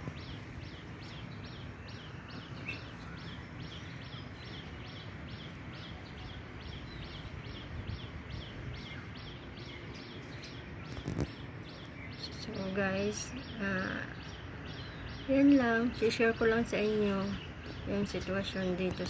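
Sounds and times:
bird chirping: 0:00.0 - 0:19.0
low steady background hum: 0:00.0 - 0:19.0.

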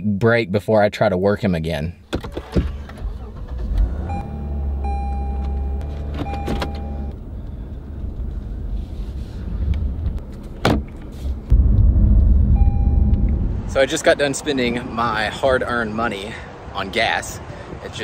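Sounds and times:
car cabin rumble: 0:02.2 - 0:13.8
held electronic tones: 0:04.1 - 0:07.2, 0:12.5 - 0:13.4.

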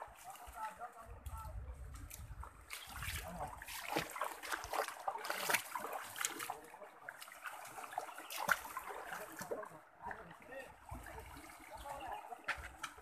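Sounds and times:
stream trickling over stones: 0:00.0 - 0:13.0
water splashing from wading: 0:01.8 - 0:13.0.

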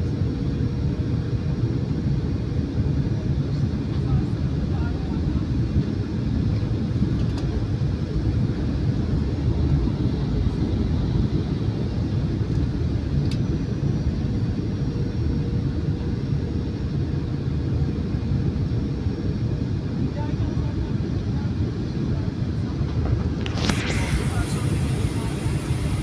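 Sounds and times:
airplane engine rumble: 0:00.0 - 0:26.0
small click: 0:07.2 - 0:07.5
rushing air: 0:22.9 - 0:26.0.

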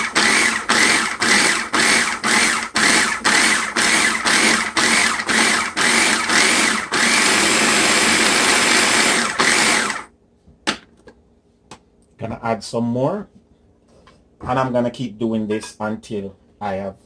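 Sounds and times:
food processor motor whirring: 0:00.0 - 0:10.1.

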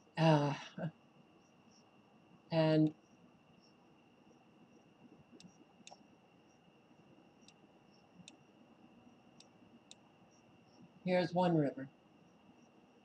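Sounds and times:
faint steady high whine: 0:00.0 - 0:13.0
faint computer mouse clicks: 0:05.3 - 0:06.0, 0:07.4 - 0:07.6, 0:09.4 - 0:10.0.

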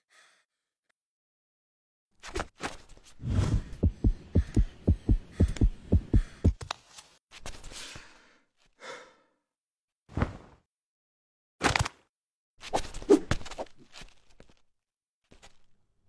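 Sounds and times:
deep rapid thumps: 0:03.2 - 0:06.6.

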